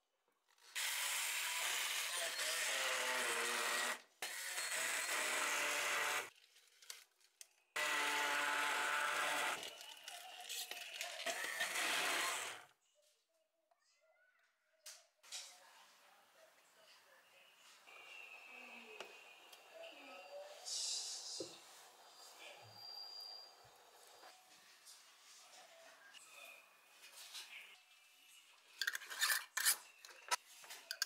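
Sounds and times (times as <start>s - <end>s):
immersion blender running: 0.8s - 6.3s, 7.8s - 9.6s, 11.4s - 12.6s.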